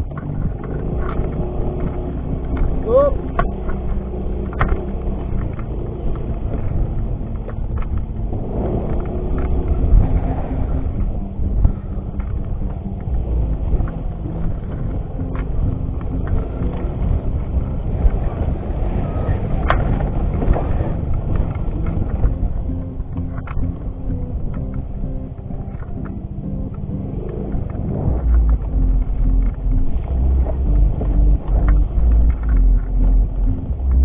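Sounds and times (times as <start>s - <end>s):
clicks and knocks over bumps: 0.0s - 34.0s
scooter engine running: 0.0s - 34.0s.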